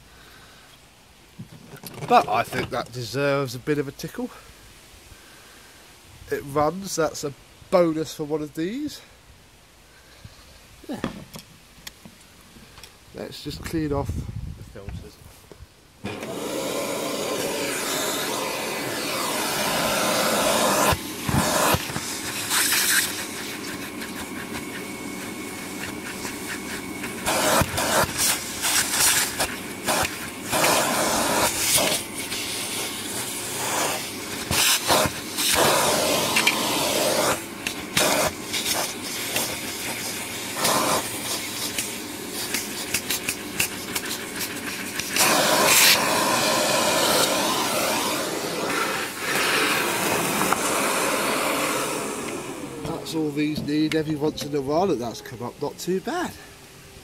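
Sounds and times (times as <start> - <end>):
vacuum cleaner sucking air: 16.0 - 55.2.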